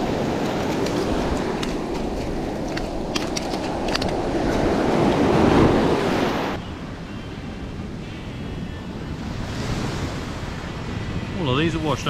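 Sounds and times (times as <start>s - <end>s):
surf washing up a beach: 0.0s - 6.7s
wind on microphone: 0.0s - 12.0s.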